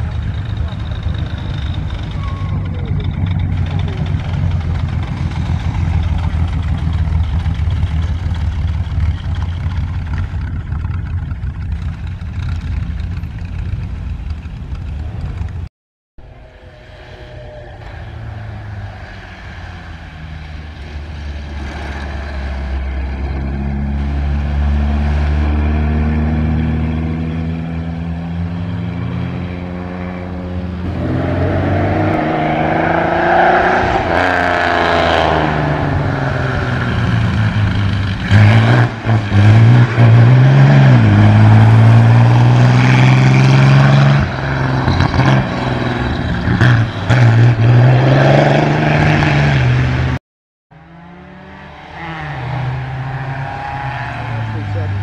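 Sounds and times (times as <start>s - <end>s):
racing car engine accelerating: 16.5s - 55.0s.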